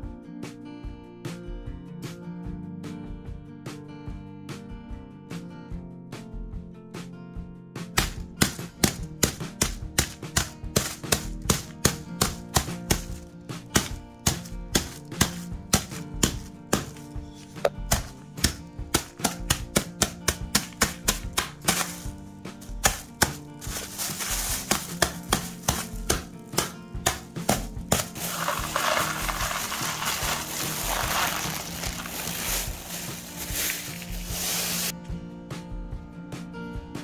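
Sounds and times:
dry noodles cracking: 20.6s - 26.8s, 27.4s - 34.9s
plastic bag crinkling: 23.6s - 26.0s, 28.0s - 34.9s.

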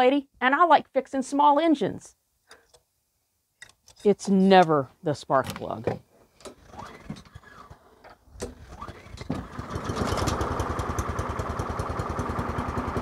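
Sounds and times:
lawn mower engine starting: 6.4s - 13.0s.

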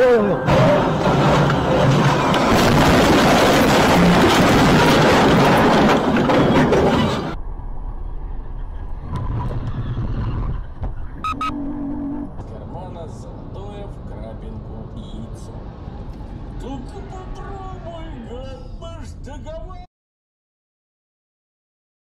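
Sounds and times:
car road noise on freeway: 0.0s - 19.8s
lorry crash rushing and rumbling: 0.4s - 11.2s
steady tone: 11.0s - 12.6s.

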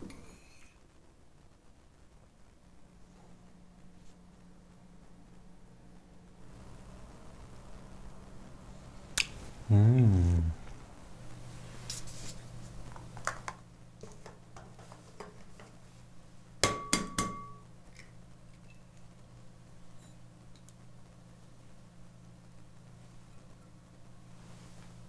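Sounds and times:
bowl ringing: 16.7s - 17.7s.

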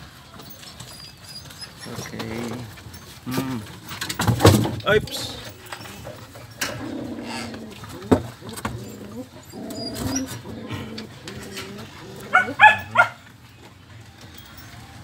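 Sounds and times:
puppies whining: 0.3s - 4.2s, 4.8s - 15.0s
puppies yelping: 0.8s - 3.2s, 4.9s - 13.3s.

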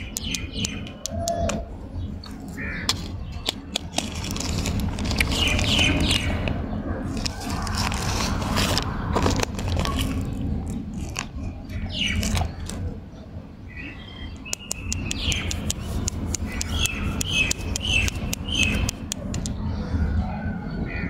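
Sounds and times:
sharp clicks: 0.0s - 1.6s, 14.4s - 19.6s
small birds chirping: 0.0s - 21.0s
steady low rumble: 0.0s - 21.0s
plastic candy wrapper crinkling: 3.5s - 6.4s, 7.1s - 11.5s, 12.1s - 12.8s.

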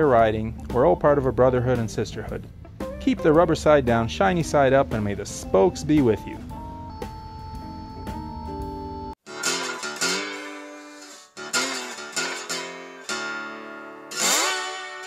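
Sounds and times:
other music over low noise: 0.0s - 10.6s
acoustic guitar strumming: 2.7s - 15.0s.

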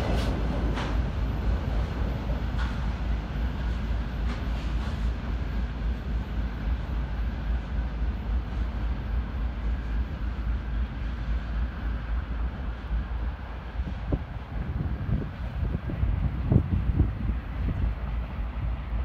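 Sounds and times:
freight train wheels rumbling on rails: 0.0s - 19.0s
wind buffeting microphone: 12.4s - 19.0s.

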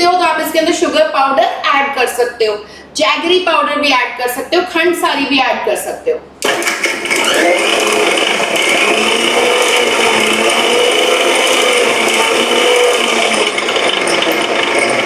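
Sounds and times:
mixer grinder motor whine: 6.4s - 15.0s.

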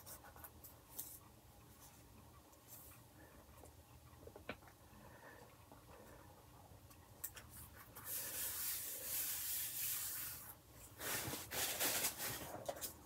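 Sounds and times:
hand rubbing paper: 7.7s - 12.5s.

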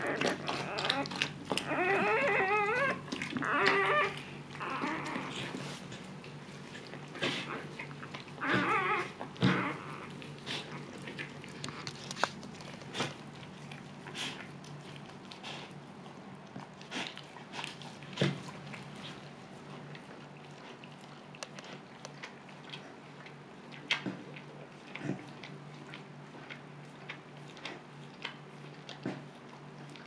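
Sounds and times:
husky whimpering: 0.0s - 5.9s, 7.0s - 11.8s.

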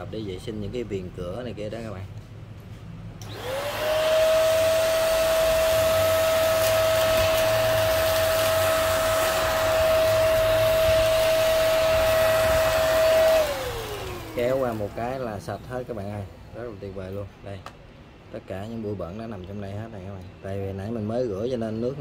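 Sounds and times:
handheld vacuum whine: 3.2s - 15.1s
rushing air hiss: 3.3s - 16.0s.

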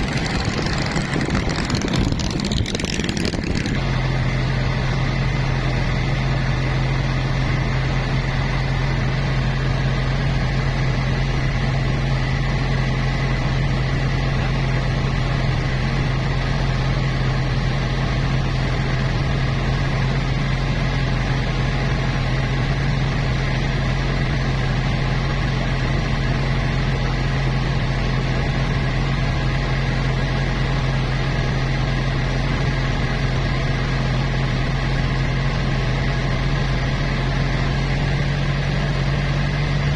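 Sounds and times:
boat engine droning: 0.0s - 13.6s.

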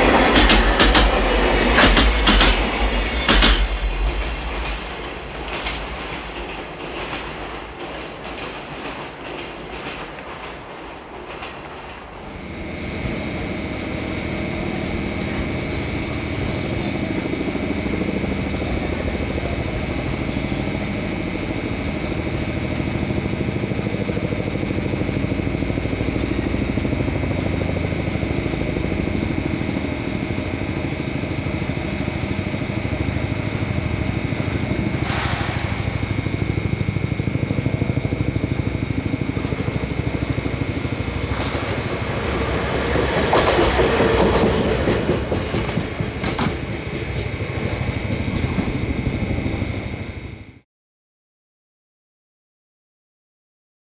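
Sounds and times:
high-pitched whine: 0.0s - 6.3s, 12.3s - 50.6s
diesel locomotive engine throb: 0.0s - 50.6s
short burst of hiss: 35.0s - 36.2s.

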